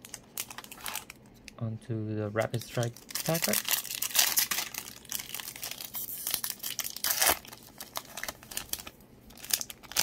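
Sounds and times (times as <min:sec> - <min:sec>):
foil wrapper crinkling: 0:00.0 - 0:01.2, 0:02.4 - 0:10.0
foil wrapper ripping: 0:02.5 - 0:10.0.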